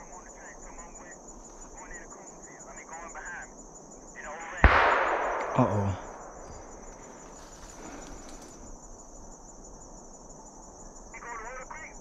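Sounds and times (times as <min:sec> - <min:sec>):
insect chirring: 0:00.0 - 0:12.0
shotgun blast echo: 0:04.6 - 0:08.0.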